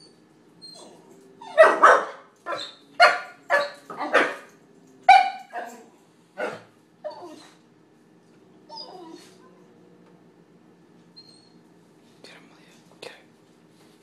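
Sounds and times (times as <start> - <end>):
puppy yapping: 0.6 - 4.5.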